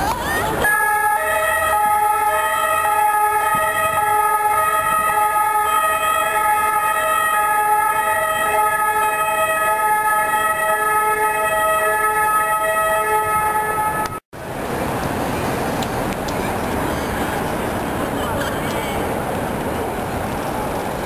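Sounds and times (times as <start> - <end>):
street traffic: 0.0 - 21.0
two-tone siren: 0.6 - 14.2.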